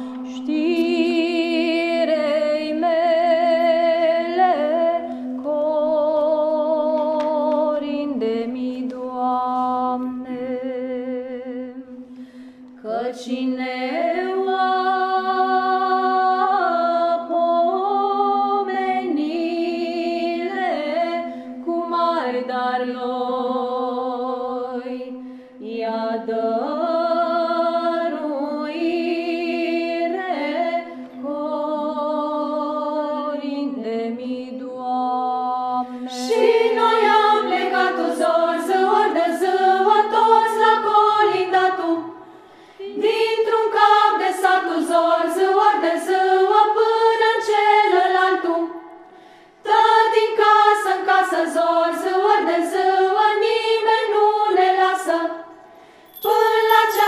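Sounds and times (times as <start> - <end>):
women's choir singing a cappella: 0.0 - 12.0, 12.8 - 55.6, 56.2 - 57.0.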